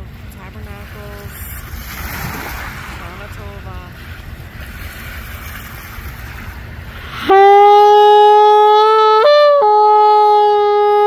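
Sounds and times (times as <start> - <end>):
shofar blast: 7.1 - 11.0.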